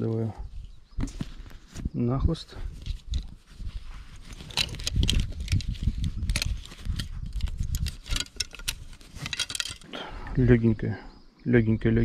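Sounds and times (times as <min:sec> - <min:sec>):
fishing tackle clicks and knocks: 0:04.3 - 0:09.9.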